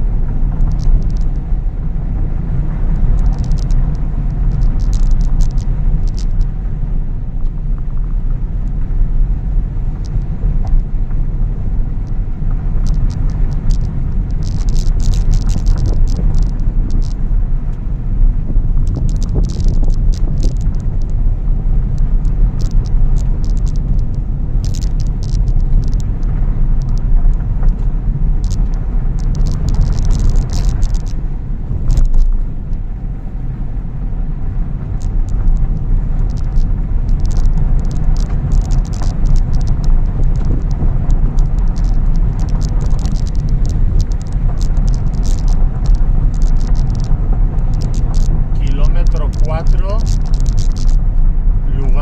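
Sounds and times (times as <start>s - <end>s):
car driving on gravel: 0.0s - 52.0s
clicks and rattles: 0.6s - 1.4s, 3.0s - 6.5s, 12.8s - 17.3s, 18.8s - 21.2s, 22.0s - 32.5s, 34.8s - 51.1s.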